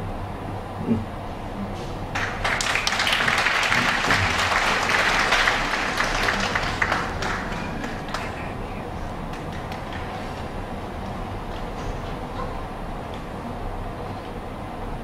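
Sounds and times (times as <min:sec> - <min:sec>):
audience applauding: 0:02.1 - 0:12.4.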